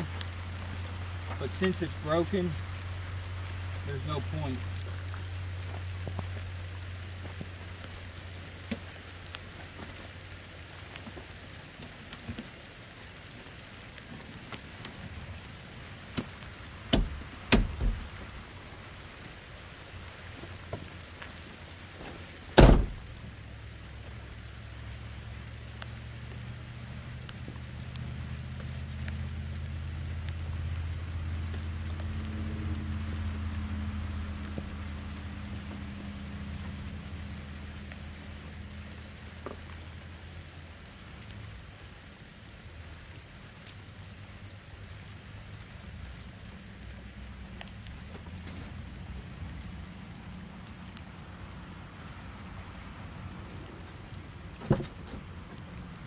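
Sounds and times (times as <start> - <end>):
steady rain falling: 0.0 - 56.0
sharp knocks: 16.9 - 18.0
loud thump: 16.9 - 18.1, 22.6 - 23.0, 54.6 - 55.1.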